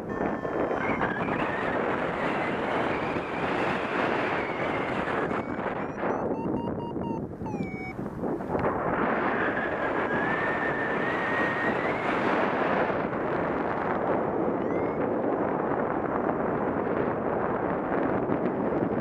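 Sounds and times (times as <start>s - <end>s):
wind on microphone: 0.0s - 19.0s
thin whistling tone: 4.4s - 7.9s
short chirp: 5.9s - 8.0s.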